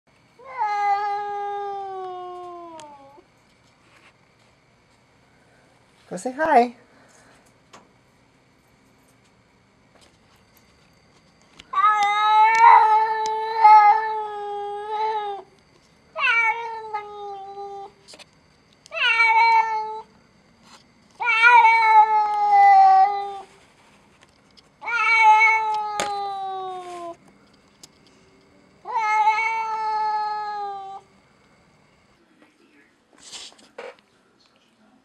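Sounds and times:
cat meowing: 0:00.4 - 0:03.2, 0:11.7 - 0:15.4, 0:16.2 - 0:17.9, 0:18.9 - 0:20.1, 0:21.2 - 0:23.5, 0:24.8 - 0:27.2, 0:28.8 - 0:31.1.

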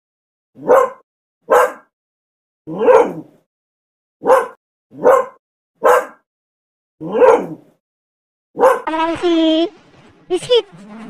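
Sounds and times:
dog barking: 0:00.6 - 0:01.9, 0:02.7 - 0:03.3, 0:04.2 - 0:06.3, 0:07.0 - 0:07.6, 0:08.6 - 0:08.9.

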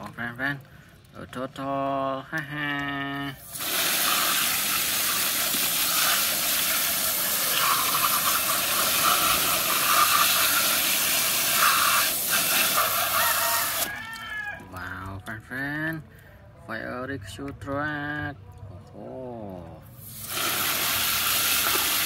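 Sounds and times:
hose nozzle spraying water: 0:03.3 - 0:14.2, 0:20.0 - 0:22.0.

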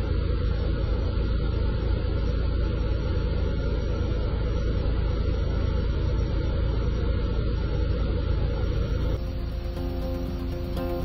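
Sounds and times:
aircraft engine drone: 0:00.0 - 0:11.0
airflow noise: 0:08.4 - 0:11.0.

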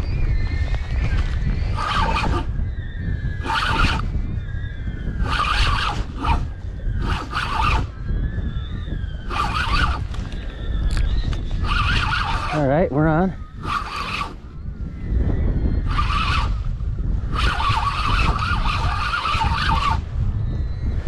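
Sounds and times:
wind on microphone: 0:00.0 - 0:21.0
fishing reel whirring: 0:01.6 - 0:04.2, 0:05.0 - 0:14.5, 0:15.8 - 0:16.7, 0:17.3 - 0:20.1.

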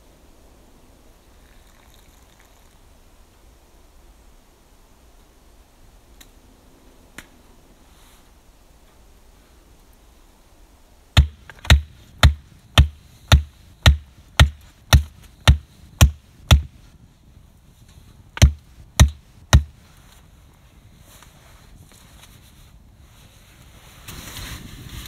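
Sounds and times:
pole pounded into ground: 0:18.4 - 0:19.8.

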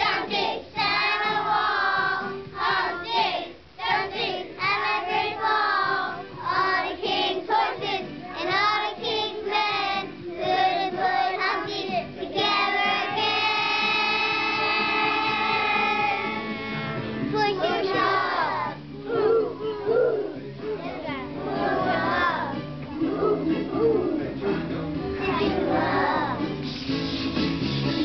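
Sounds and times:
children singing together: 0:00.0 - 0:20.3, 0:21.2 - 0:26.5.

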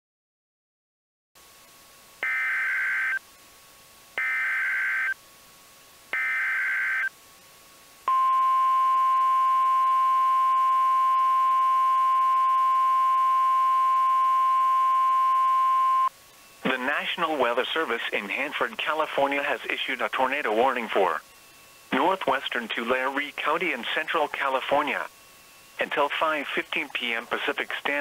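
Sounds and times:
steady warning alarm tone: 0:02.2 - 0:03.2, 0:04.2 - 0:05.2, 0:06.1 - 0:07.1, 0:08.1 - 0:16.1.

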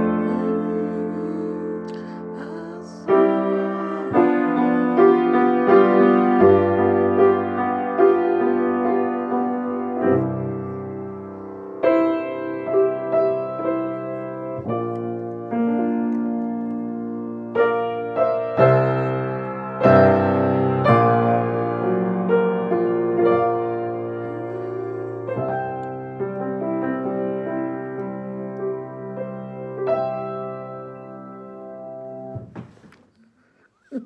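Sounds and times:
piano chords and melody: 0:00.0 - 0:32.9.

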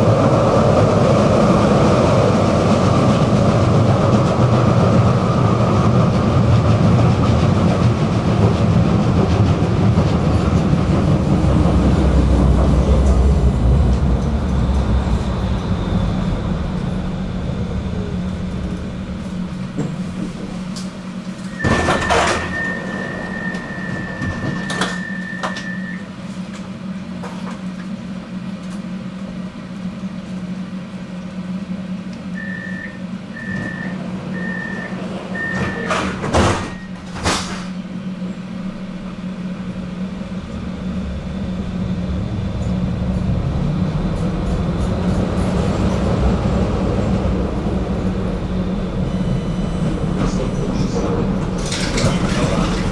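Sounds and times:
tram doors clattering: 0:00.0 - 0:29.5, 0:30.4 - 0:52.9
tram running noise: 0:00.0 - 0:52.9
sliding doors knocking shut: 0:21.6 - 0:25.7, 0:35.4 - 0:37.8, 0:51.4 - 0:52.9
warning tone: 0:32.3 - 0:37.0
short warning beeps: 0:32.4 - 0:36.0.

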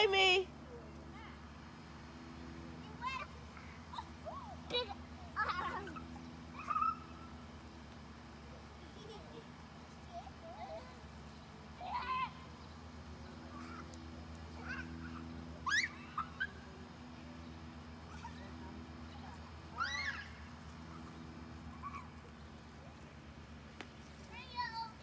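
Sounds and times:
steady low hum: 0:00.0 - 0:25.0
children squealing: 0:05.4 - 0:07.2, 0:15.6 - 0:16.6, 0:19.7 - 0:20.5.

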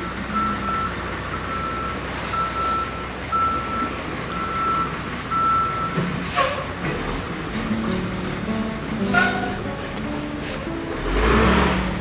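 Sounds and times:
vehicle backup alarm beeping: 0:00.0 - 0:06.7
street background noise: 0:00.0 - 0:12.0.

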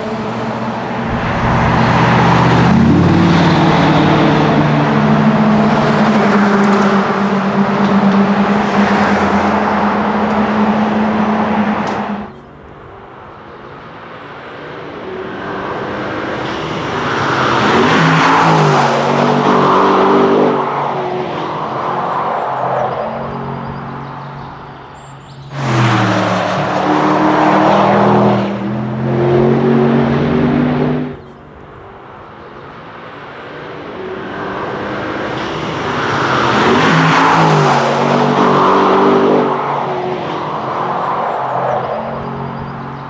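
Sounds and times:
car exhaust under hard acceleration: 0:00.0 - 0:13.3.

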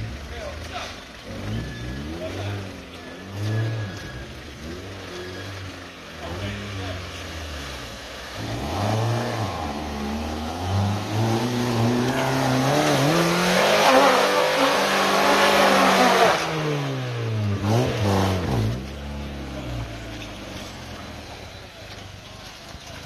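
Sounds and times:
car engine revving hard: 0:01.2 - 0:20.0
wheels spinning in mud: 0:18.8 - 0:23.0.

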